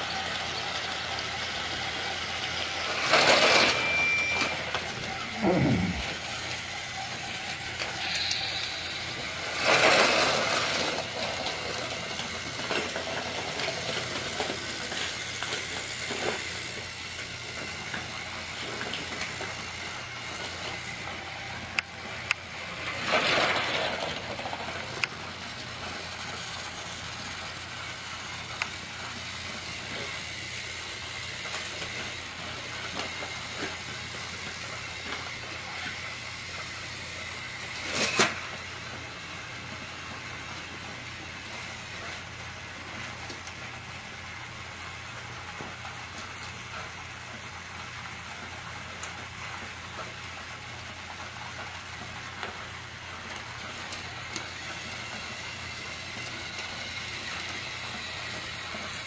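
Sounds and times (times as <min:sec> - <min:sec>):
toy train running on track: 0:00.0 - 0:59.0
loud hissing bursts: 0:07.9 - 0:09.7.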